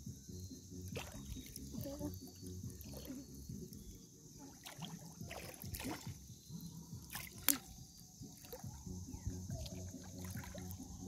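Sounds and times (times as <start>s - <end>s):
small splashes: 0.9s - 6.3s, 7.0s - 8.8s, 9.6s - 10.9s
seawater sloshing while wading: 0.9s - 8.9s, 9.5s - 11.0s.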